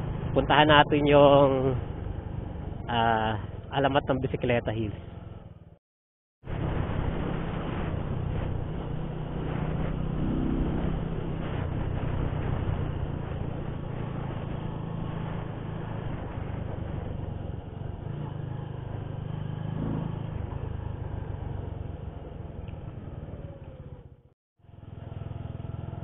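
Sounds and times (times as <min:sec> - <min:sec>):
motorcycle engine running: 0:06.6 - 0:26.0.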